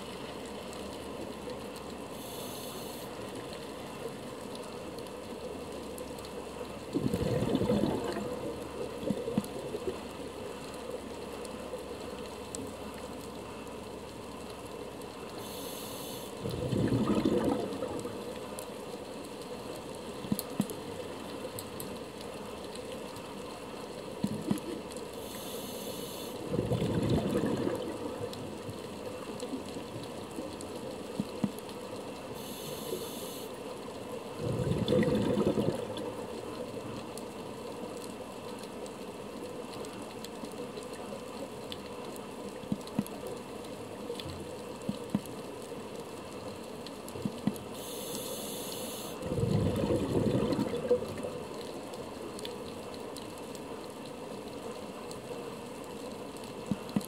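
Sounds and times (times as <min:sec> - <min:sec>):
steady underwater hiss: 0:00.0 - 0:57.0
faint hiss of inhalation: 0:02.2 - 0:03.1, 0:15.4 - 0:16.4, 0:25.2 - 0:26.4, 0:32.4 - 0:33.5, 0:47.8 - 0:49.2
underwater exhaled bubbles rushing: 0:06.8 - 0:10.1, 0:16.4 - 0:18.4, 0:26.4 - 0:30.4, 0:34.4 - 0:36.4, 0:49.2 - 0:51.7
sharp underwater clicks: 0:24.1 - 0:31.8, 0:42.6 - 0:43.4, 0:47.1 - 0:48.8, 0:56.6 - 0:57.0.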